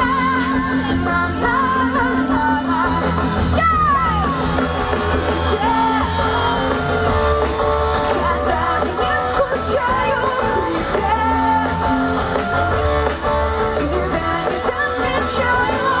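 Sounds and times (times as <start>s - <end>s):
woman singing through a pa: 0.0s - 4.5s, 8.0s - 12.0s, 13.7s - 16.0s
amplified pop-rock band: 0.0s - 16.0s.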